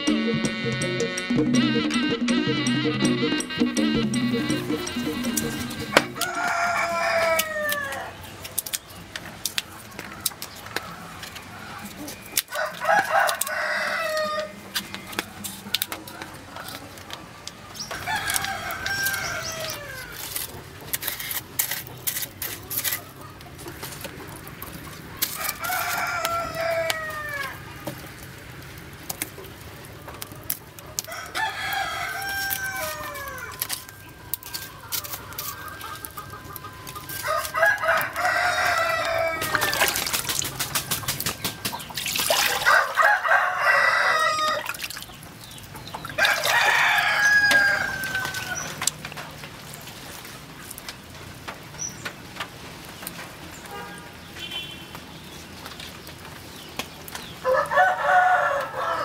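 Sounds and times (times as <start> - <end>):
rooster crowing: 4.3 - 8.2, 10.0 - 14.8, 17.9 - 20.3, 25.3 - 27.7, 31.0 - 41.0, 42.3 - 44.8, 46.1 - 48.9, 57.4 - 59.0.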